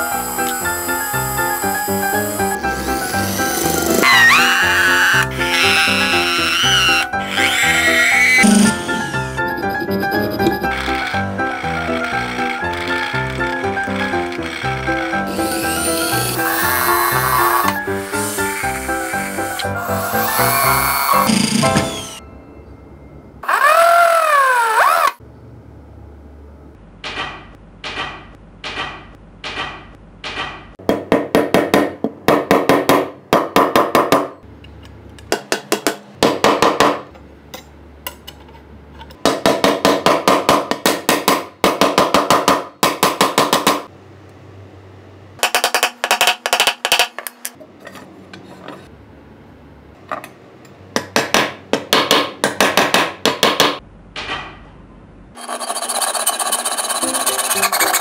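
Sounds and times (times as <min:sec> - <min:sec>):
hand tool rasping on metal: 0:00.0 - 0:21.3, 0:55.4 - 0:58.0.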